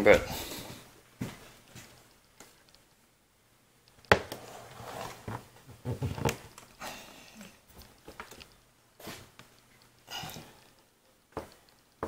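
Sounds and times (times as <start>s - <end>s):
rustling: 4.0s - 6.8s.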